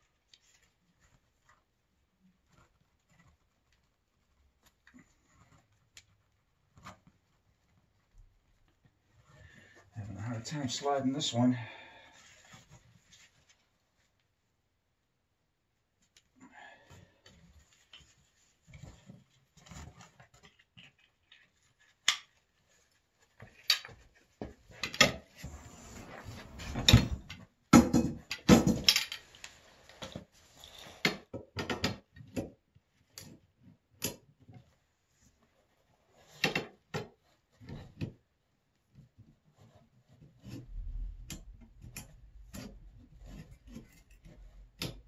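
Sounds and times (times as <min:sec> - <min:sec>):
clatter and knocks: 0:26.5 - 0:29.3.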